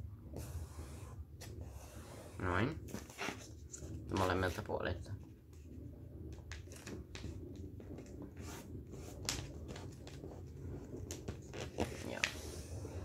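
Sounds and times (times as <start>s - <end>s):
low steady background hum: 0.0s - 13.0s.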